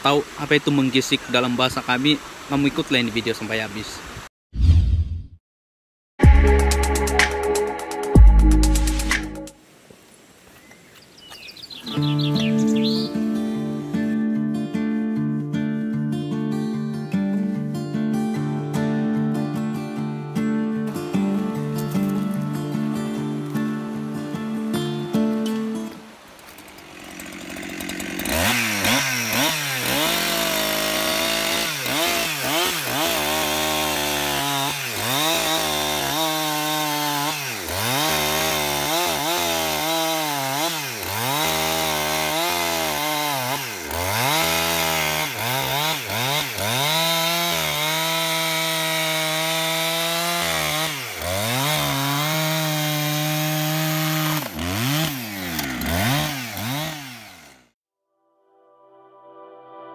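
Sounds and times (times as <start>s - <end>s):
chainsaw cutting log: 25.5s - 57.8s.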